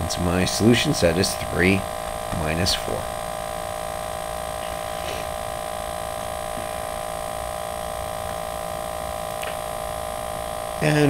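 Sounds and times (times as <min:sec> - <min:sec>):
steady electrical hum: 0:00.0 - 0:11.0
even hiss: 0:04.6 - 0:05.5.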